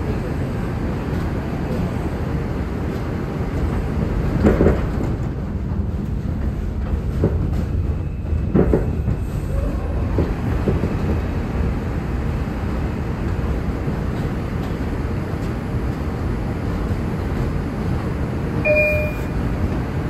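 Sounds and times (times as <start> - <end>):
train wheels rumbling on rail: 0.0 - 20.0
train wheel clunks: 3.6 - 9.3.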